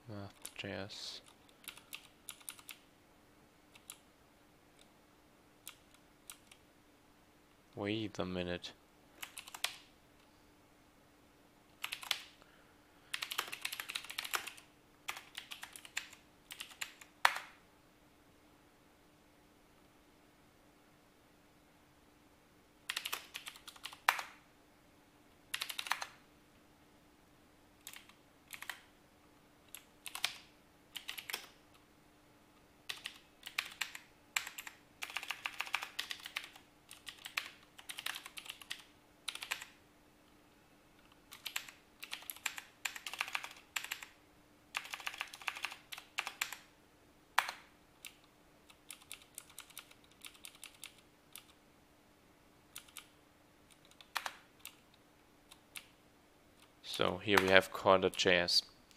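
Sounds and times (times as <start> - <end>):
typing on keyboard: 1.2 - 2.8, 3.7 - 4.0, 5.6 - 6.6, 9.2 - 9.8, 11.8 - 12.4, 13.1 - 17.5, 22.9 - 24.4, 25.5 - 26.2, 27.8 - 28.9, 29.7 - 31.6, 32.9 - 39.8, 41.3 - 46.7, 47.4 - 51.6, 52.7 - 53.1, 53.7 - 54.8.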